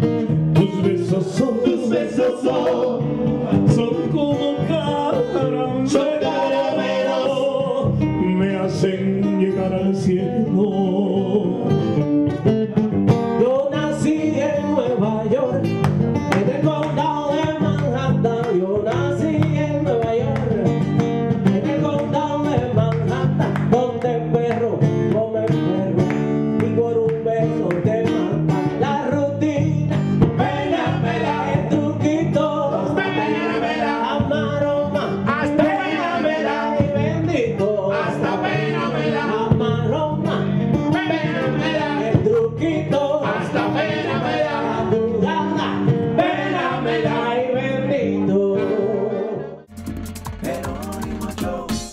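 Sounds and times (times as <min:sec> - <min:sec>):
electric bass guitar: 0:00.0 - 0:51.9
guitar picking melody: 0:00.0 - 0:51.9
voices singing: 0:00.6 - 0:11.6, 0:30.2 - 0:49.6, 0:50.4 - 0:51.9.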